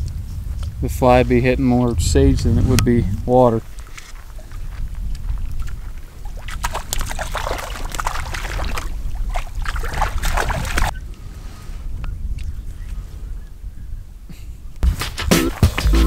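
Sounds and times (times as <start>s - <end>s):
low wind rumble: 0.0s - 14.8s
fish thrashing in water: 5.6s - 11.0s.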